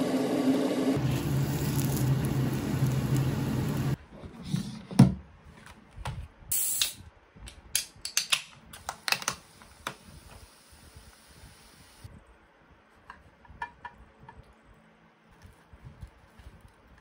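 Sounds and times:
machine humming: 0.0s - 4.0s.

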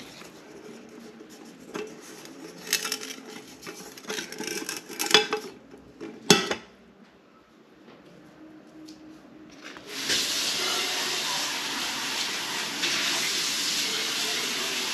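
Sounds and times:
metal pot and utensils clinking: 1.6s - 6.7s.

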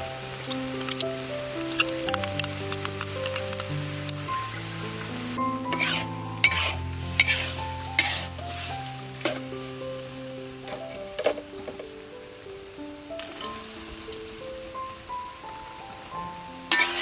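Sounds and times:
food sizzling in a wok: 0.0s - 17.0s
metal ladle scraping a wok: 0.4s - 4.2s, 5.7s - 8.4s, 16.7s - 17.0s.

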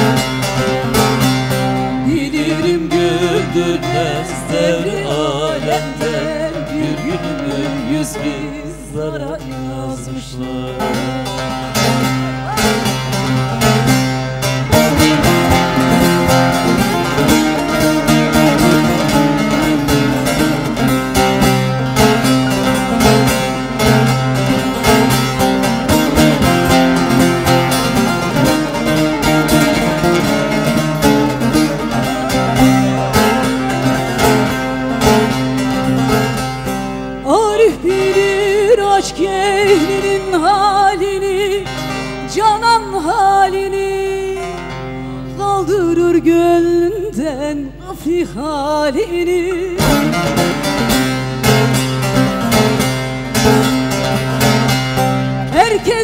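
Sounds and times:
woman singing folk song: 0.0s - 36.5s, 37.1s - 54.8s, 55.4s - 56.0s
long-necked lute strummed fast: 0.0s - 56.0s.

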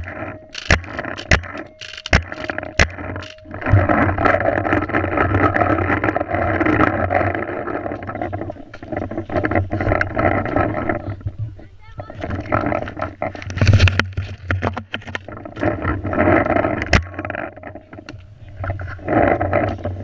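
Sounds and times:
paintball markers firing: 0.0s - 3.4s.

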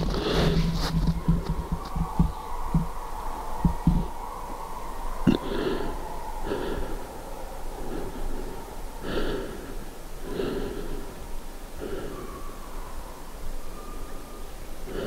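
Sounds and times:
person breathing heavily: 0.0s - 1.7s, 5.3s - 12.6s.

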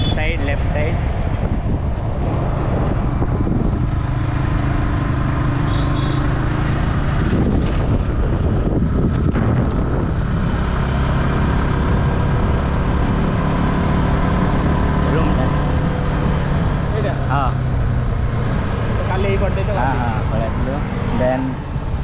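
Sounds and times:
wind and road noise: 0.0s - 22.0s
motorcycle engine running: 2.8s - 19.0s.

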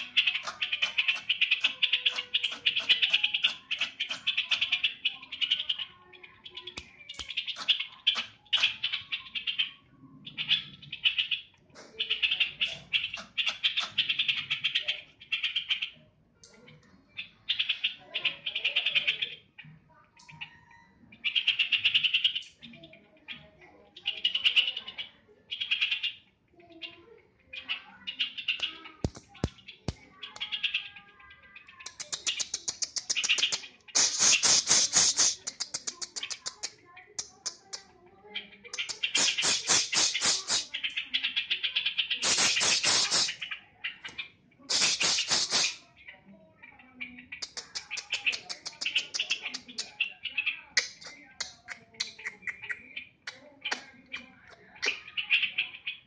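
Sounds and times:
bird singing chattering notes: 0.0s - 16.0s, 27.5s - 37.9s, 38.5s - 45.9s, 47.1s - 56.0s.

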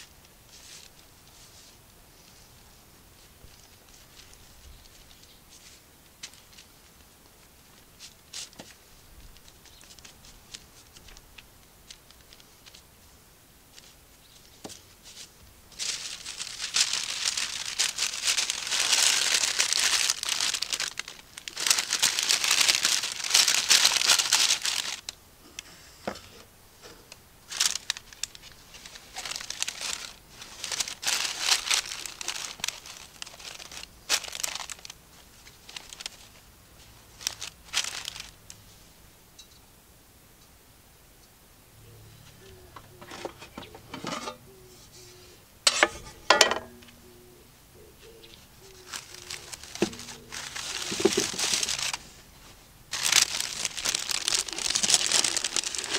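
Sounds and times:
baking paper crinkling: 3.2s - 7.1s, 7.7s - 25.1s, 26.8s - 38.7s, 48.6s - 55.9s.

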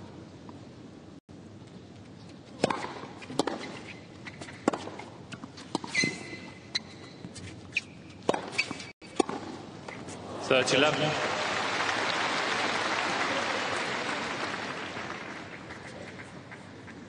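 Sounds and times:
racket striking tennis ball: 2.5s - 10.1s
ball bouncing: 2.6s - 3.7s
shoe squeak: 3.2s - 4.6s, 5.6s - 9.0s.

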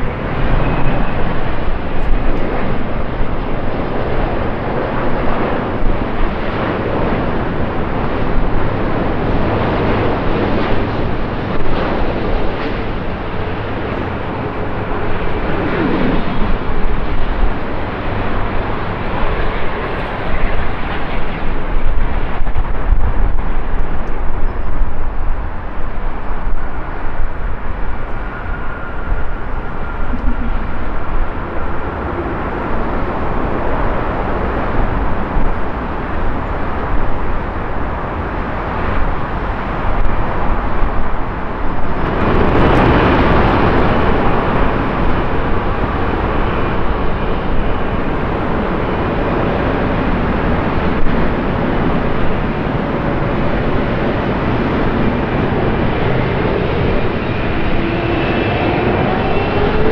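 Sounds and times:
jet engine rumble: 0.0s - 59.9s
faint steady whine: 26.4s - 37.8s.

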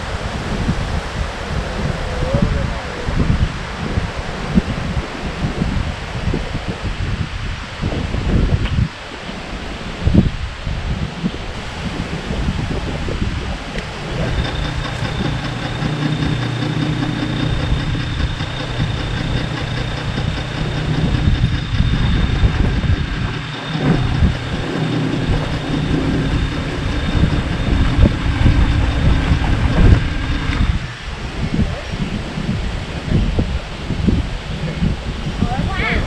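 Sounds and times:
electric motor humming: 13.8s - 31.2s.

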